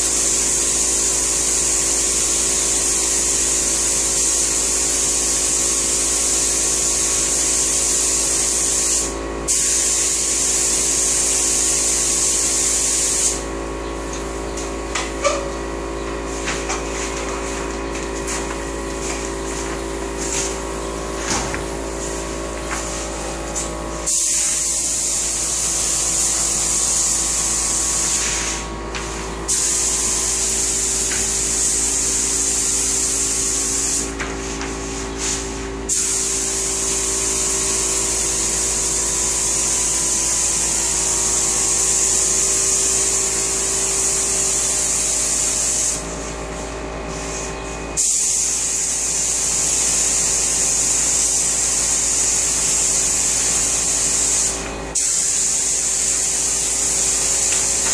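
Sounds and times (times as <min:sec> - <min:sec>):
spray gun hissing: 0:00.0 - 0:14.1, 0:18.2 - 0:57.9.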